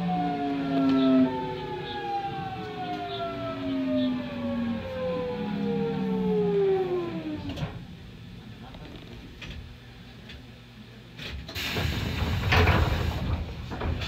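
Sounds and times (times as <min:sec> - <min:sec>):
train motors whining while braking: 0:00.0 - 0:08.1.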